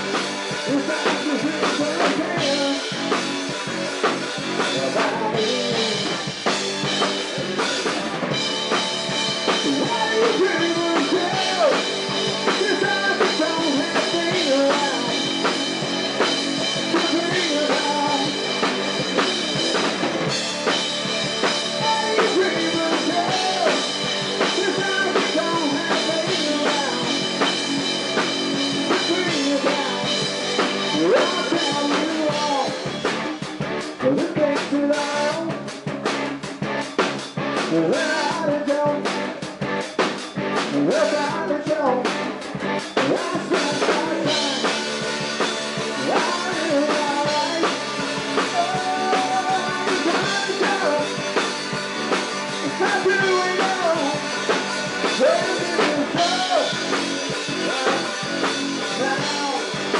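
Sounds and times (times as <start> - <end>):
drum kit: 0.0 - 59.9
electric bass: 0.0 - 59.9
electric guitar: 0.0 - 59.9
person singing: 0.6 - 3.0, 4.6 - 6.6, 9.5 - 15.3, 16.6 - 19.6, 21.7 - 27.6, 28.8 - 32.9, 34.0 - 35.6, 37.7 - 39.3, 40.7 - 42.2, 43.0 - 45.0, 46.0 - 51.2, 52.6 - 54.3, 55.0 - 59.9.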